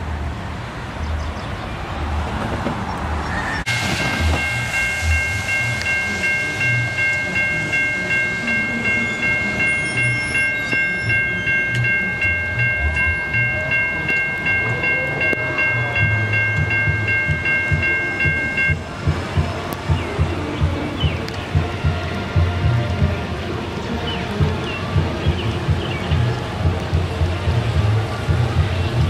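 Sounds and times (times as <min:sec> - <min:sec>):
crossing warning bell ringing: 0:03.7 - 0:20.4.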